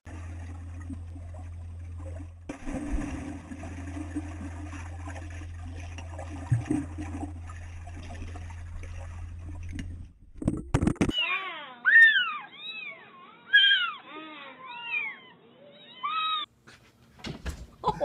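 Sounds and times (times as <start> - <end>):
muffled underwater water churning: 0.0 - 11.0
steady low hum: 0.1 - 11.0.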